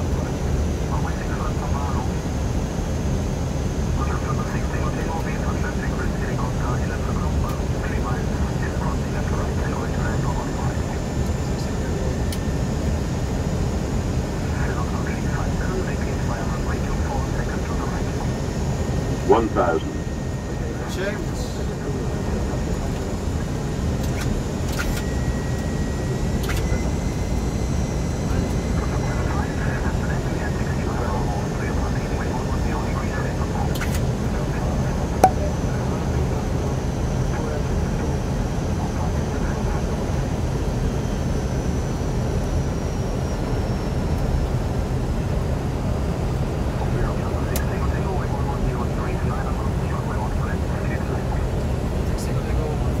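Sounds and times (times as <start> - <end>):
faint steady high tone: 35.2 - 35.8.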